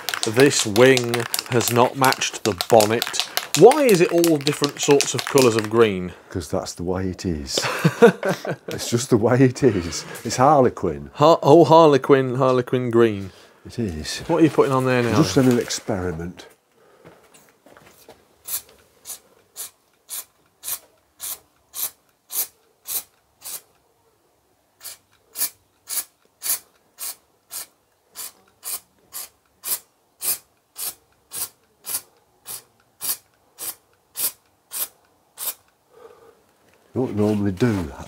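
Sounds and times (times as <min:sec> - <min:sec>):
spray can hissing bursts: 0:00.0 - 0:05.8, 0:18.4 - 0:23.7, 0:24.8 - 0:35.7.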